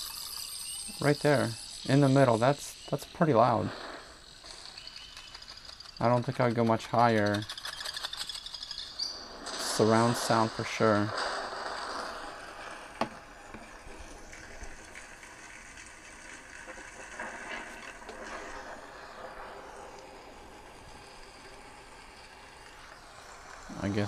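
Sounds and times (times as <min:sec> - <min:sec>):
ambient soundtrack from phone speaker: 0:00.0 - 0:11.2.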